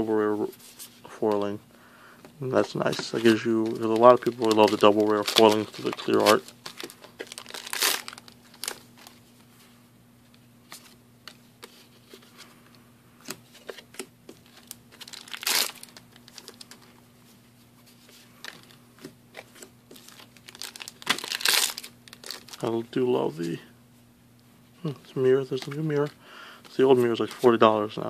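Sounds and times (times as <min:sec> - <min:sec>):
faint steady hum: 0:00.0 - 0:28.0
cards being handled: 0:02.6 - 0:09.5, 0:13.2 - 0:22.6, 0:25.1 - 0:27.7
foil wrappers crinkling: 0:02.8 - 0:09.2, 0:13.5 - 0:17.0, 0:18.1 - 0:22.8.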